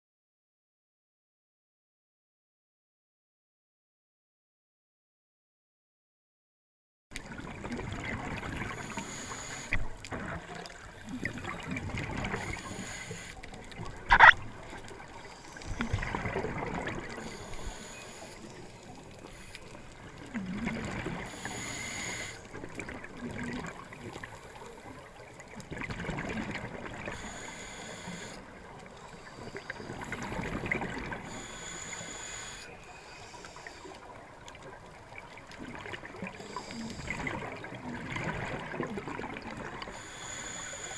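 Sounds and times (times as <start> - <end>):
exhaled bubbles: 7.2 - 24.3, 25.6 - 27.4, 29.4 - 31.5, 34.6 - 39.9
diver breathing through regulator: 8.6 - 9.9, 12.2 - 13.4, 15.1 - 22.5, 27.0 - 34.0, 36.3 - 37.5, 39.9 - 40.9.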